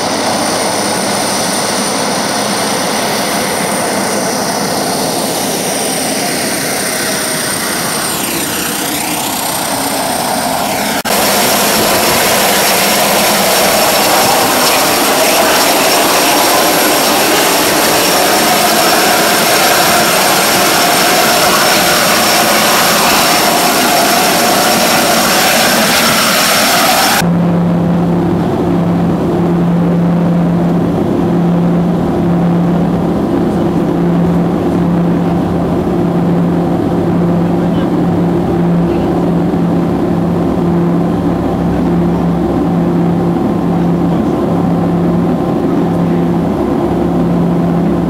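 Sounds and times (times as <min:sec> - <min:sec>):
propeller aircraft engines running: 0:00.0 - 0:48.0
turbine whine: 0:00.0 - 0:48.0.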